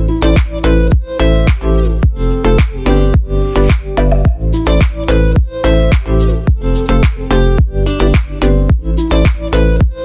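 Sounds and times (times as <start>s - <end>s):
electronic dance music: 0.2s - 10.0s.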